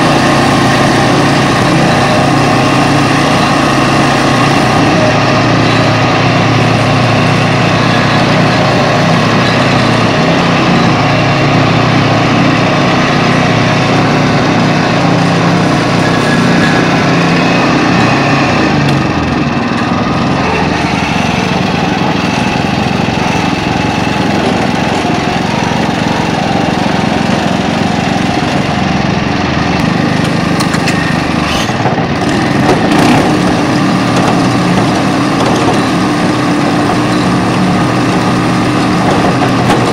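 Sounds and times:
tractor engine running: 0.0s - 39.9s.

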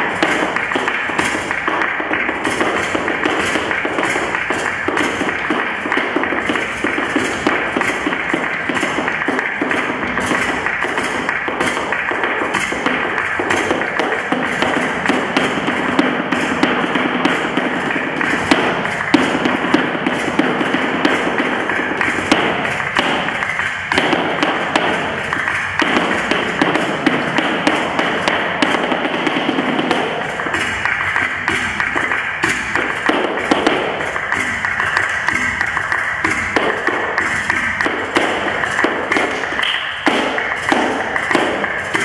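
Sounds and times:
dance shoes tapping and stamping: 0.0s - 42.0s
flamenco music: 0.0s - 42.0s.

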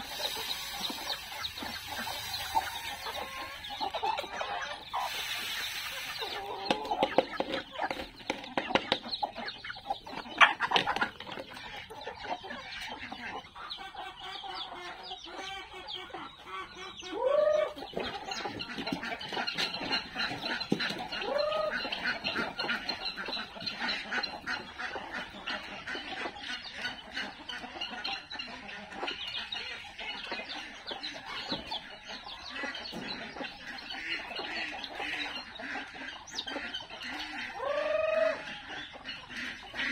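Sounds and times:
chickens clucking: 0.0s - 39.9s
chicks peeping: 0.0s - 39.9s
rising and falling bird calls: 21.2s - 22.0s.

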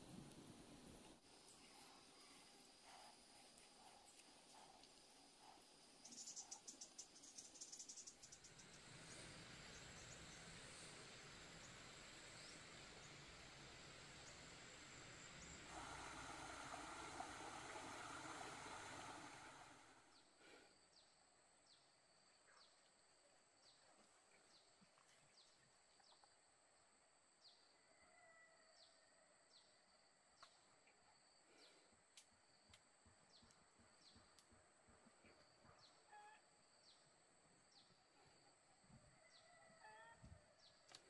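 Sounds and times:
insect drone: 1.2s - 21.0s.

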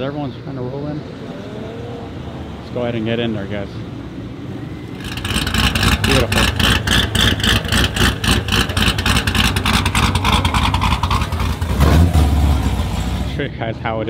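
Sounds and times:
car exhaust running loud: 5.0s - 13.4s.

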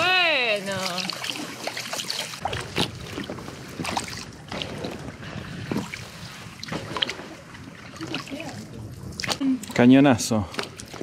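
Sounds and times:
water lapping against hull: 0.0s - 11.0s
paddle splashes: 0.7s - 9.4s.

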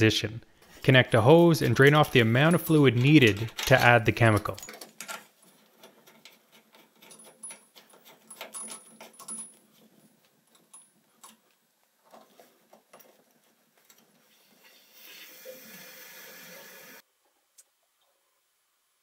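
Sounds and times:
chain jingling: 6.7s - 11.0s.

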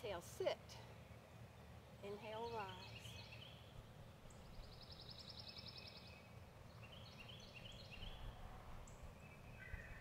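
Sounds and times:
songbird trilling: 2.3s - 3.7s.

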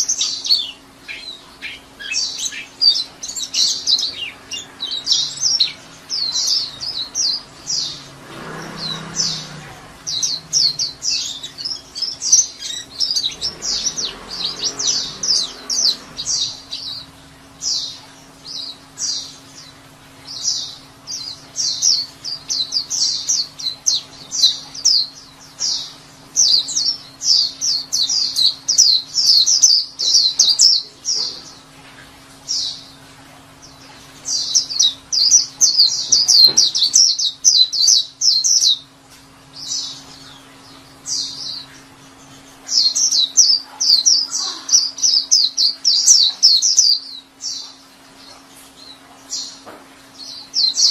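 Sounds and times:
bird chattering in high chirps: 39.6s - 49.6s.

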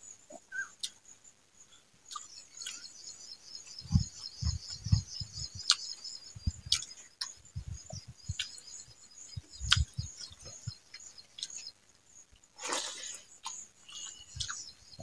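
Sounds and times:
insects chirring: 0.0s - 15.0s
close chewing with mouth clicks: 2.1s - 2.9s, 3.7s - 11.7s, 12.4s - 15.0s.

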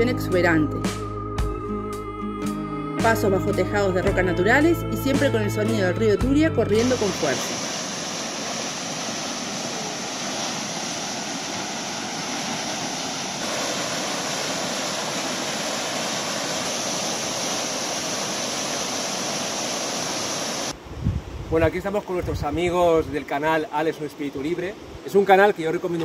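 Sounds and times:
fast-flowing river water: 6.8s - 20.8s.

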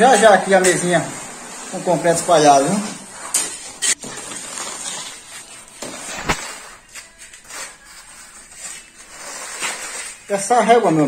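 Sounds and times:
screed board scraping concrete: 0.1s - 6.8s.

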